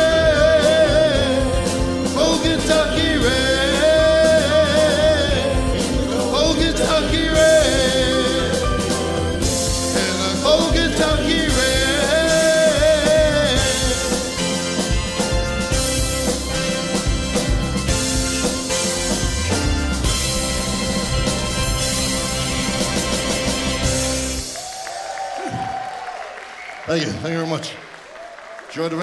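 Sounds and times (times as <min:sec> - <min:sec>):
man singing slow ballad: 0:00.0 - 0:09.2, 0:09.9 - 0:14.6.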